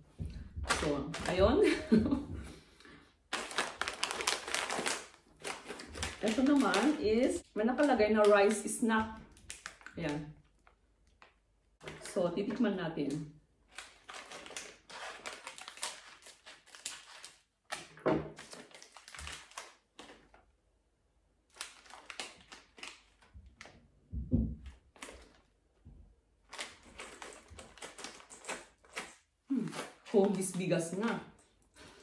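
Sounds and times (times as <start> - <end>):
snack packet crinkling: 3.3 - 12.2, 13.6 - 20.5, 21.5 - 23.8, 24.7 - 25.6, 26.4 - 32.0.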